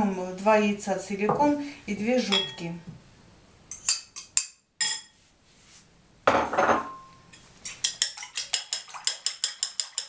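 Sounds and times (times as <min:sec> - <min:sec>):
fork beating eggs in bowl: 0:07.4 - 0:10.0.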